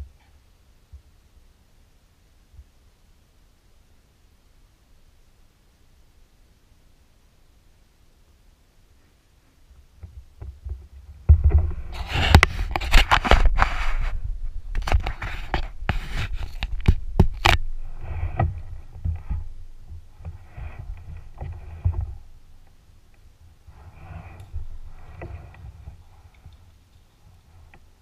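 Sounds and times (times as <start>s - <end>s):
low rumble: 10.9s - 26.7s.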